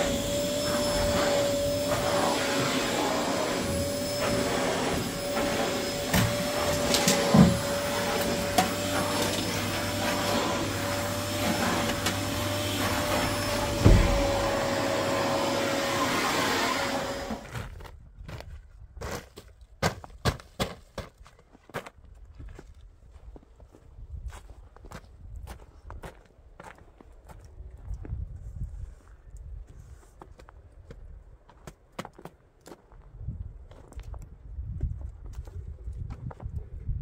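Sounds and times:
vacuum cleaner humming: 0.0s - 17.5s
broom brushing snow: 0.0s - 17.6s
knocks and thud: 11.4s - 14.8s.

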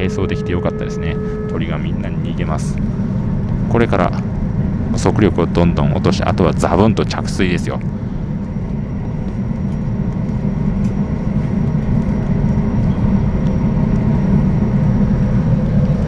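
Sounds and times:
faint high whine: 0.0s - 11.0s
turbine engine low rumble: 0.0s - 16.0s.

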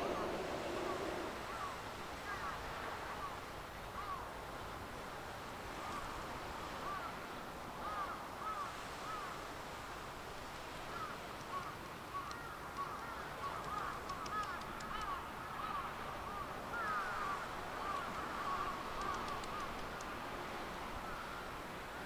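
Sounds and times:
birds calling: 0.0s - 3.4s, 10.8s - 20.0s
background hiss: 0.0s - 22.0s
faint clicks: 10.5s - 15.2s, 17.9s - 20.2s.

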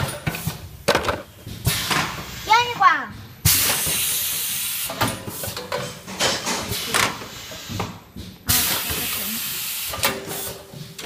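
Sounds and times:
loud air hiss: 3.5s - 5.6s, 8.5s - 10.6s.

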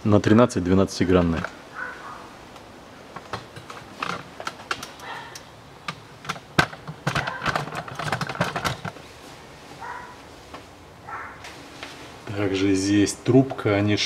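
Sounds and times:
metal tools clicking and knocking: 3.2s - 9.0s.

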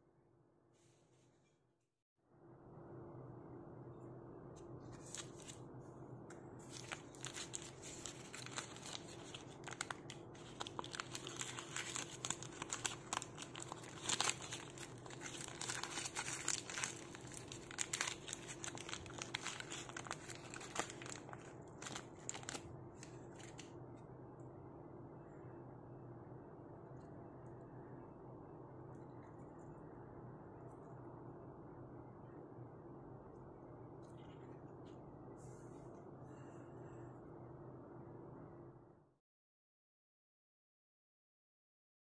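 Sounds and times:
low hum: 2.3s - 39.1s
paper wrapper crinkling and tearing: 4.9s - 5.6s, 6.6s - 23.7s.

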